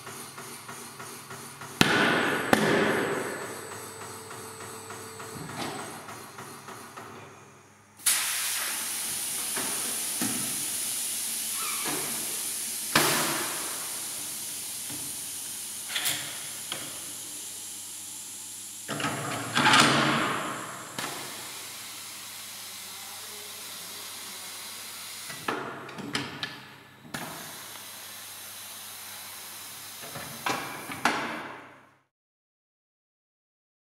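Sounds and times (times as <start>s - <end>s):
rushing air burst: 8.0s - 16.6s
air hissing: 8.0s - 17.6s.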